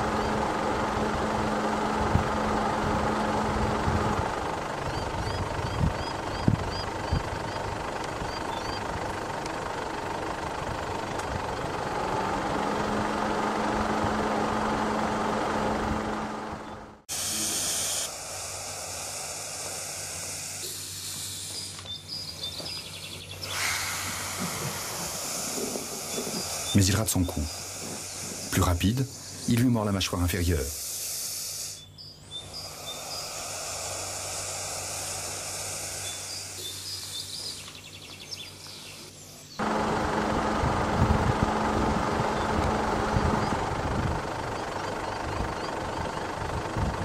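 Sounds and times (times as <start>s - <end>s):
short rising chirps: 30.8s - 37.7s.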